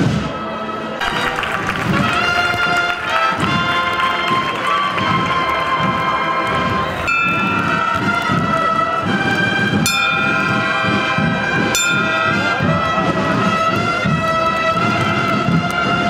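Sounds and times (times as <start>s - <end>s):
procession band with brass: 0.0s - 16.0s.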